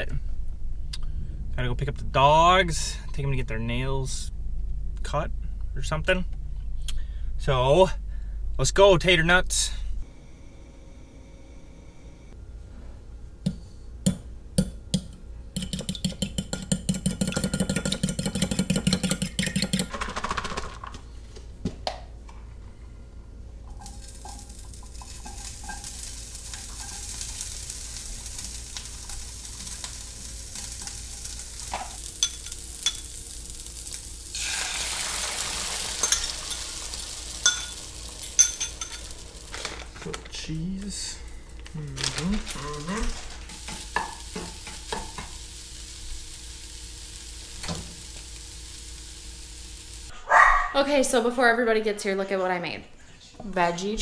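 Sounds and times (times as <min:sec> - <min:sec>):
utensils knocking: 0:14.1 - 0:20.6, 0:37.4 - 0:39.1
fork beating eggs in a bowl: 0:15.6 - 0:20.6
meat sizzling in a pan: 0:23.7 - 0:40.1, 0:42.3 - 0:50.1.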